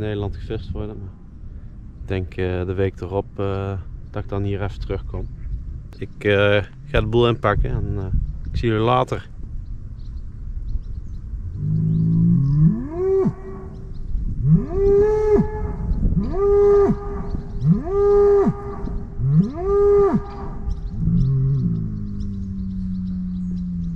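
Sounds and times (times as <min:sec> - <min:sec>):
cattle mooing: 0:11.6 - 0:13.8, 0:14.4 - 0:23.9.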